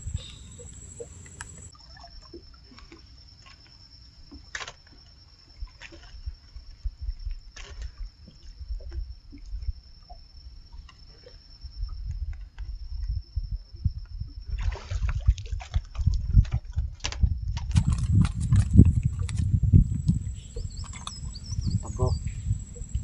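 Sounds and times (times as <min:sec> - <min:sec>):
clatter of fish swung aboard: 0:14.8 - 0:22.2
fishing line being hauled in: 0:17.0 - 0:20.2
fish splashing: 0:17.7 - 0:21.4.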